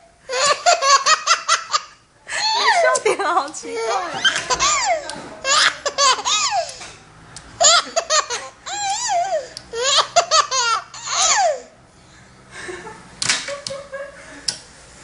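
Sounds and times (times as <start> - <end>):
baby laughing: 0.3 - 3.1, 3.7 - 6.8, 7.6 - 11.7.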